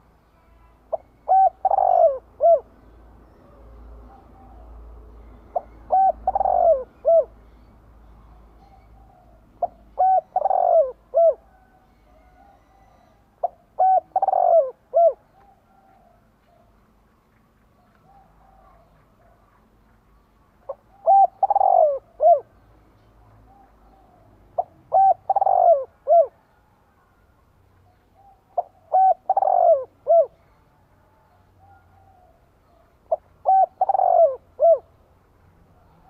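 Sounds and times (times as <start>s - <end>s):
dove cooing: 0.4s - 7.4s, 8.6s - 16.7s, 20.7s - 22.7s, 23.5s - 26.6s, 27.9s - 30.6s, 31.3s - 35.1s.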